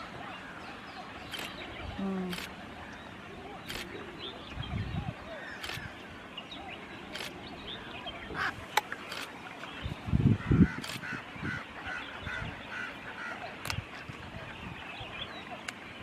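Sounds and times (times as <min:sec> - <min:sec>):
waterbirds calling: 0:00.0 - 0:16.0
sharp clicks: 0:01.3 - 0:01.6.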